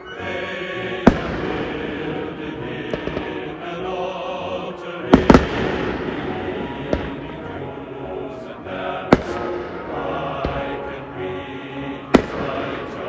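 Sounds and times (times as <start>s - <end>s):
fireworks banging: 1.0s - 2.1s, 2.8s - 3.6s, 5.1s - 8.4s, 9.0s - 10.8s, 12.0s - 13.0s.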